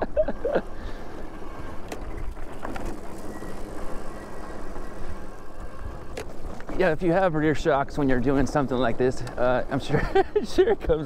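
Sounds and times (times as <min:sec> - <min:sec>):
bike rumbling over dirt: 0:00.0 - 0:11.0.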